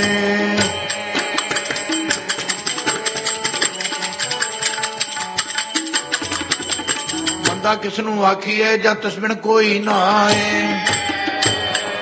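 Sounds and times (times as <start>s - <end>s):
jingling hand percussion: 0.0s - 8.4s, 9.8s - 12.0s
tabla: 0.0s - 8.4s, 9.0s - 12.0s
harmonium melody: 0.0s - 9.1s.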